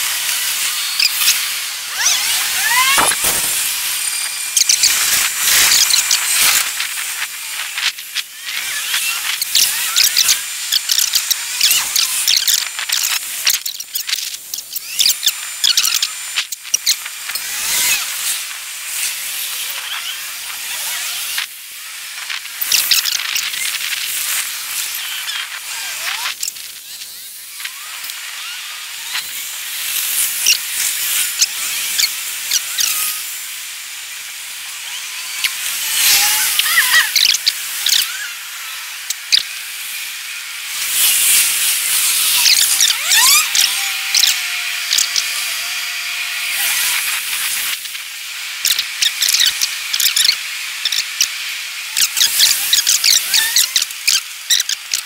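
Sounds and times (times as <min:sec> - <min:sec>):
sped up street noise hiss: 0:00.0 - 0:54.7
quick squeaky glides: 0:00.8 - 0:06.7, 0:42.0 - 0:45.2.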